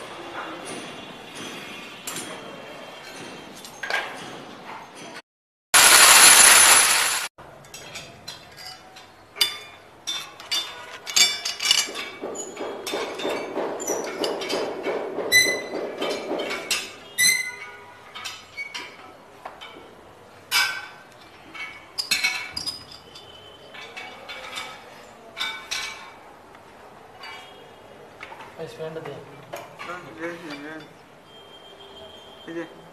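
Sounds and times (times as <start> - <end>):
loud burst of noise: 5.7 - 7.3.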